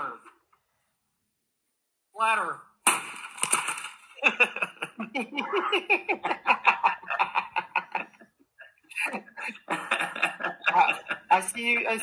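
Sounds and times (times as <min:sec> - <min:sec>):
hearty laughter: 0:04.2 - 0:11.4.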